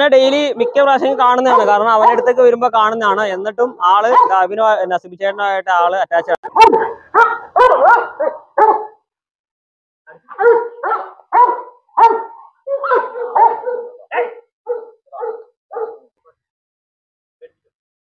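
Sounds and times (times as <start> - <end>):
dog barking aggressively: 0.6 - 2.5, 3.7 - 4.4, 6.4 - 9.0, 10.2 - 16.1.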